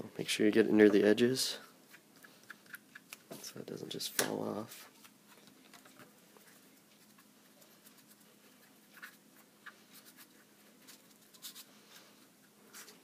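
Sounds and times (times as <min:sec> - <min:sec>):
paper rustling and rubbing: 0:06.4 - 0:13.0.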